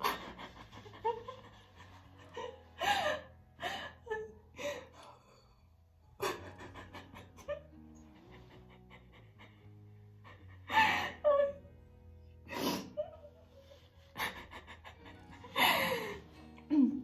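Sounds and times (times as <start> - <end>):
woman laughing tearfully: 0.0 - 5.0, 6.2 - 11.7, 12.5 - 17.0
soft music with held notes: 0.0 - 17.0
woman gasping and crying: 2.2 - 5.6, 10.3 - 11.6, 12.4 - 17.0.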